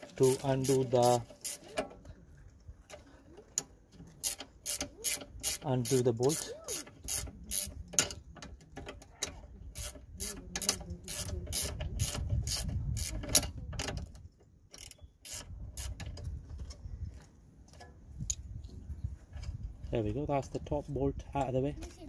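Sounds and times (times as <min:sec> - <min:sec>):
ratchet clicking: 0:00.0 - 0:01.8, 0:04.2 - 0:08.2, 0:09.8 - 0:13.5, 0:14.7 - 0:16.1.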